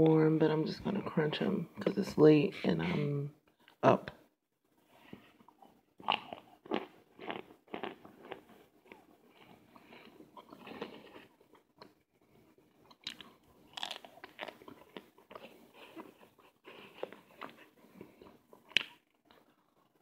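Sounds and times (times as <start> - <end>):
person chewing crunchily: 5.4 - 20.0.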